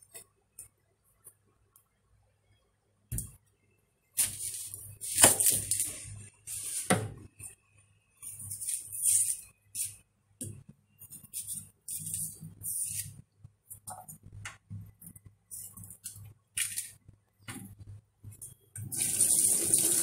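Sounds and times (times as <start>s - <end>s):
knife scraping onion: 11.1s - 13.2s.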